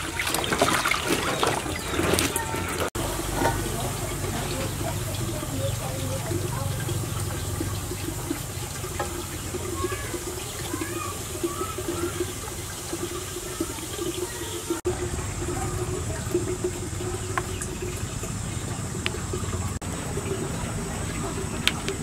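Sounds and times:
water simmering in pot: 0.0 - 22.0.

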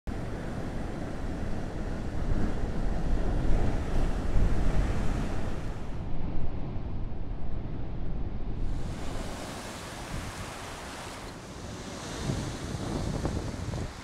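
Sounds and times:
surf crashing against rocks: 8.7 - 14.0.

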